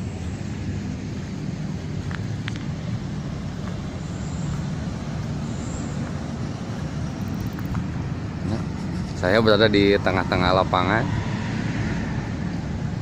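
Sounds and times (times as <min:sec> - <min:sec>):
distant road traffic: 0:00.0 - 0:13.0.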